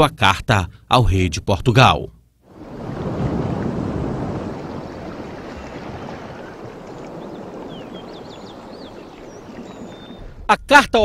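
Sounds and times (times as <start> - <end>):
surf washing onto beach: 2.5 - 10.4
faint bird chirps: 5.4 - 10.4.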